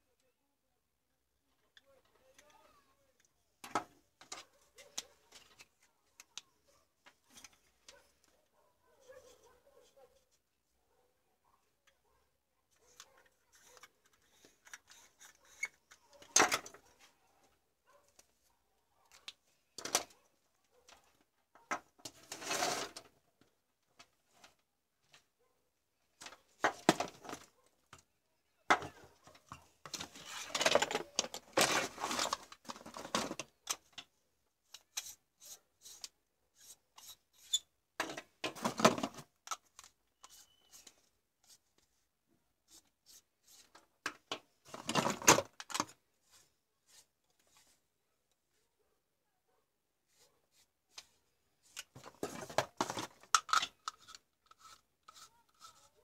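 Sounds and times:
plastic rubbing and scraping: 12.8s - 17.1s, 21.0s - 23.2s, 28.8s - 34.0s, 50.1s - 56.0s.

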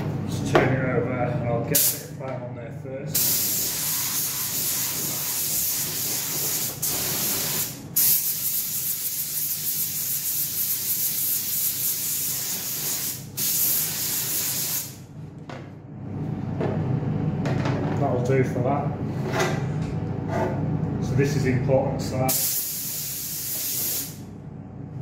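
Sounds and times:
spray gun hissing: 3.2s - 15.0s, 22.3s - 24.2s.

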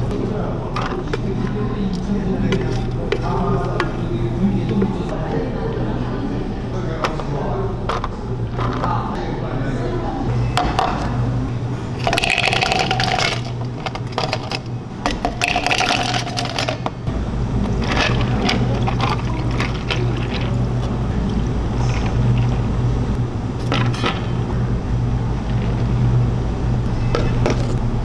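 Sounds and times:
steady low hum: 0.0s - 28.0s
ice clattering into glasses: 12.0s - 16.8s, 17.8s - 20.7s
ice clinking and crackling: 12.0s - 16.8s, 17.8s - 20.9s.

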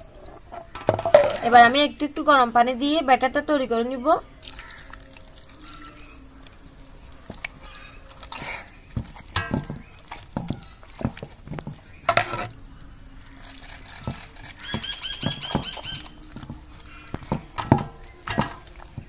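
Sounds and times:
wet paste squelching in bowl: 4.2s - 19.0s.

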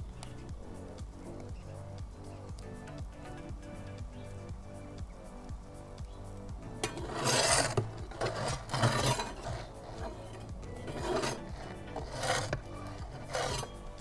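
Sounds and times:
faint background music: 0.0s - 14.0s
metal pizza peel scraping oven floor: 6.8s - 13.9s.

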